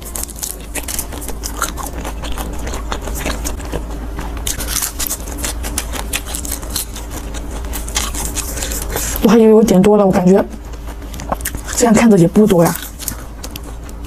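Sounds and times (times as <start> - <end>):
crunchy chewing: 0.0 - 14.0.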